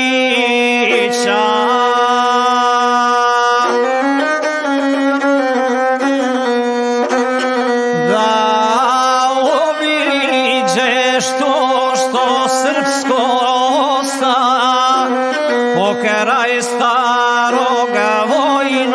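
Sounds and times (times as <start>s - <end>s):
bowed single-string fiddle melody: 0.0s - 18.9s.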